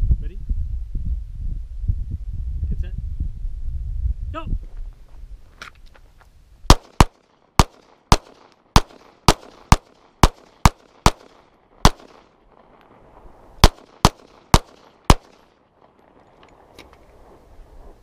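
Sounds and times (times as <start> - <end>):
pistol shots with echo: 6.7 - 12.4, 13.6 - 15.5.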